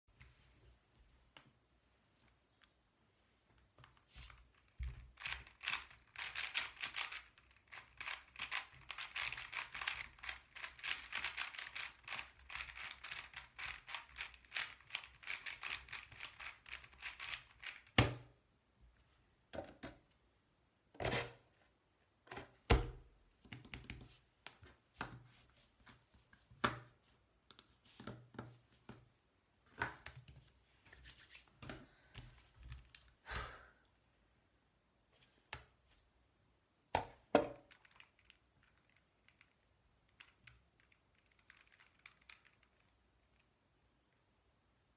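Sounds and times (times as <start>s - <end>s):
puzzle cube turning clicks: 4.3s - 18.0s
cube clacking on mat: 4.8s - 7.2s.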